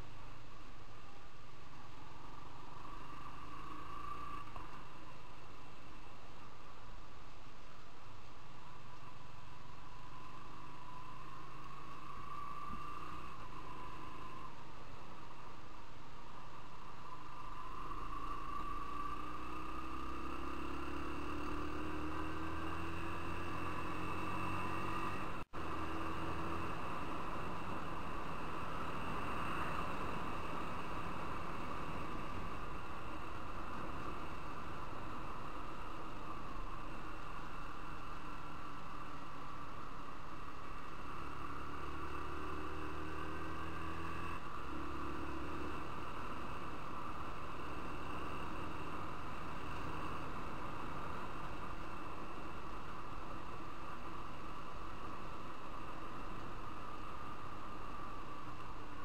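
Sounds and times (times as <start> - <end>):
motorcycle engine accelerating: 17.3 - 59.0.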